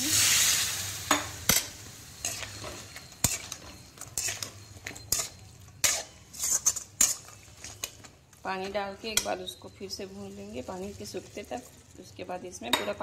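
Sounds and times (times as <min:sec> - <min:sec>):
faint sizzle: 0:00.0 - 0:13.0
spatula scraping metal pan: 0:02.2 - 0:07.9.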